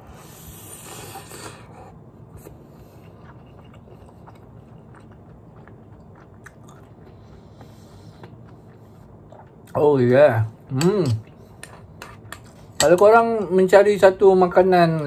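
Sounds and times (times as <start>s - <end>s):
close chewing of food: 0.5s - 10.0s.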